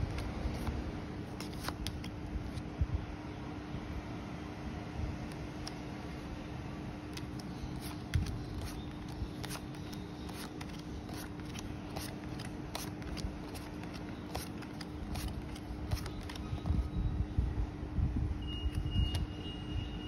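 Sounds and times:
cards clicking and sliding: 0:00.0 - 0:02.6, 0:05.2 - 0:05.9, 0:07.0 - 0:16.9.

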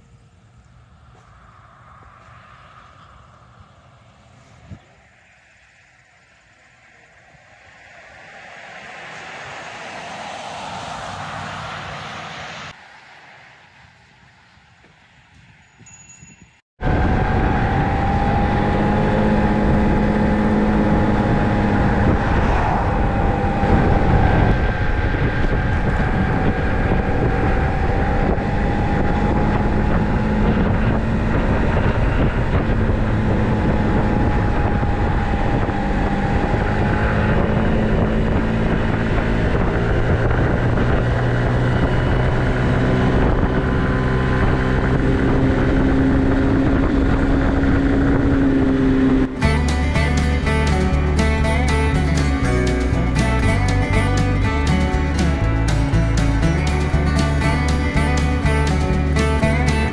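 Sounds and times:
wind noise on microphone: 0:01.1 - 0:05.1, 0:13.8 - 0:59.9
scooter engine running: 0:49.2 - 0:59.9.

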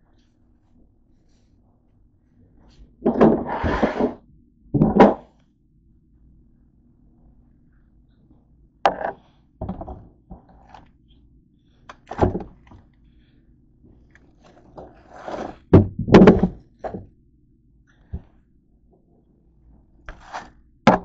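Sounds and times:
thunks and knocks around plastic tub: 0:15.8 - 0:17.1.

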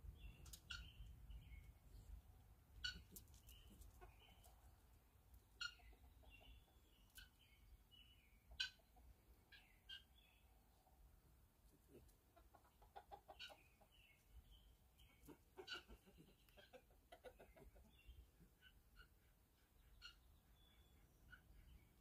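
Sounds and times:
faint bird chirps: 0:18.1 - 0:22.0.

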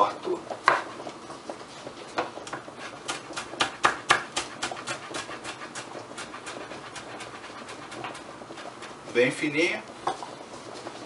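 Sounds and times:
knife tapping on cutting board: 0:02.2 - 0:04.8.

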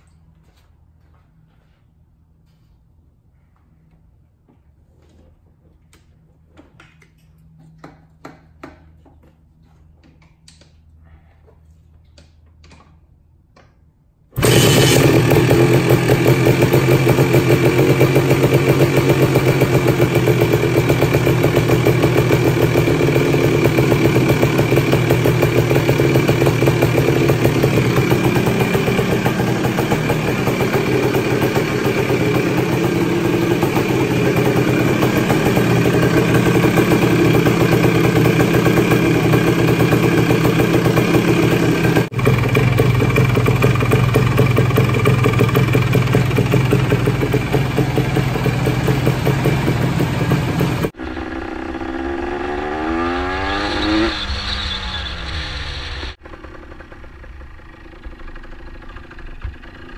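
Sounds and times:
two-stroke engine idling: 0:14.4 - 0:52.9, 0:56.2 - 0:59.9
engine accelerating: 0:14.4 - 0:59.9.

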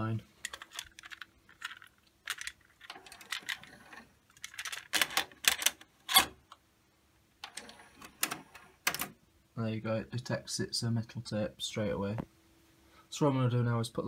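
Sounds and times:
plastic cassette clicks and clacks: 0:00.4 - 0:06.3.

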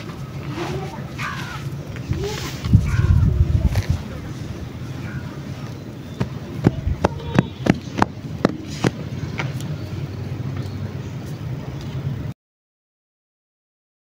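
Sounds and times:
palms patting sandy soil: 0:00.0 - 0:03.0
low rumble: 0:02.0 - 0:07.2.

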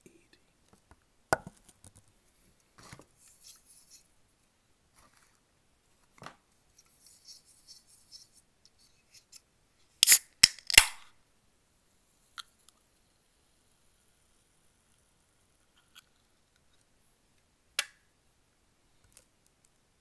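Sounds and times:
soft handling sounds: 0:00.2 - 0:09.9
can pull tab snapping: 0:10.0 - 0:11.0.

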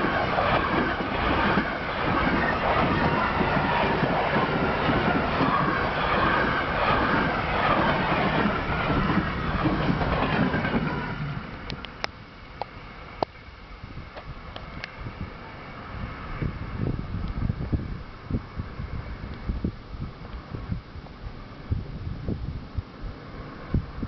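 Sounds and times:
train wheels clattering on rail: 0:00.0 - 0:12.1
wind hiss: 0:00.0 - 0:24.0.

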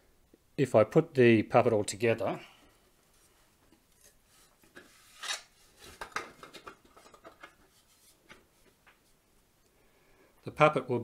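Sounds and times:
plastic parts scraping and knocking: 0:03.7 - 0:09.0.

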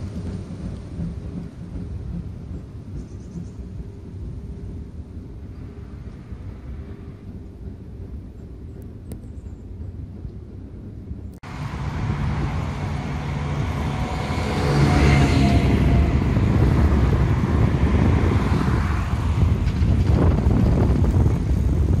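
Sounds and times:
tram passing: 0:00.0 - 0:22.0
street traffic: 0:11.4 - 0:22.0.

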